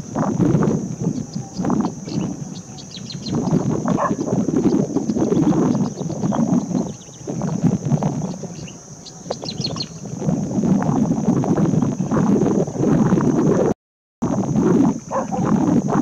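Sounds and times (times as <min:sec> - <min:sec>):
rough rumbling noise: 0:00.0 - 0:16.0
steady high hiss: 0:00.0 - 0:16.0
short high bird chirps: 0:02.0 - 0:03.5.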